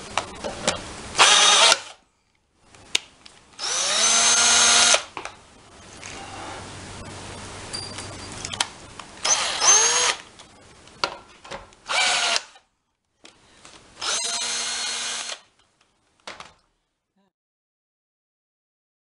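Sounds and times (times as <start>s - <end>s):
cordless drill motor bursts: 1.2s - 2.0s, 3.6s - 5.1s, 9.2s - 10.2s, 11.9s - 12.6s, 14.0s - 15.5s.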